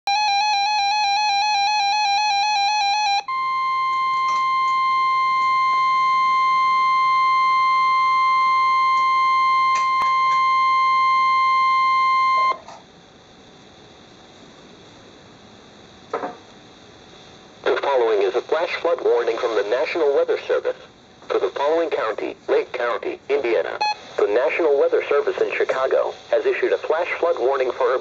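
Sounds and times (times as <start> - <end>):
high warning alarm tone: 0.1 - 12.7, 23.8 - 24.1
faint radio hiss: 11.3 - 28.0.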